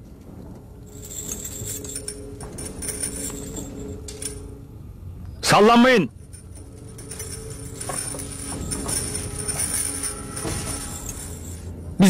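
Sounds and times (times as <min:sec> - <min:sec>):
metal chains clinking: 0:00.8 - 0:04.7, 0:06.1 - 0:11.7.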